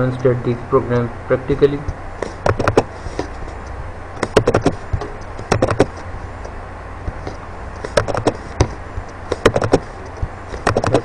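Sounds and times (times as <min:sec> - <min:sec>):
low hum: 0:00.0 - 0:11.0
computer mouse clicking: 0:03.6 - 0:11.0.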